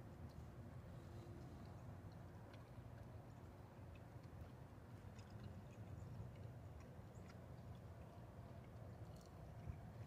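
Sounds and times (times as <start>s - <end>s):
soft ticks: 1.3s - 10.0s.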